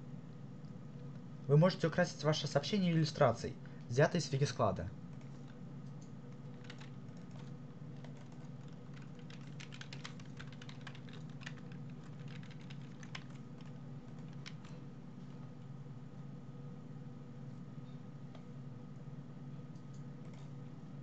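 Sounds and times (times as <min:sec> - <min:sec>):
steady low hum: 0:00.0 - 0:21.0
computer keyboard key clicks: 0:05.2 - 0:14.8.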